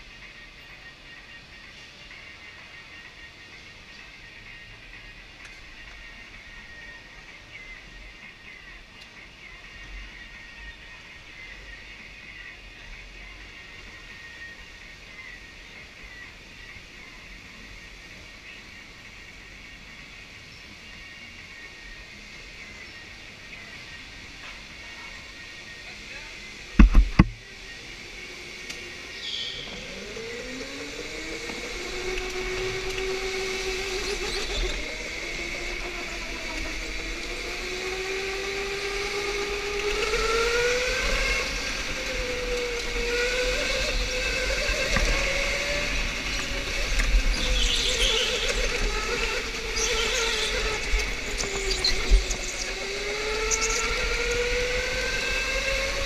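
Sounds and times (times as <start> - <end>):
electric motor whining: 26.5 - 56.0
wind rumble on camera: 30.8 - 56.0
high squeaks: 42.2 - 54.7.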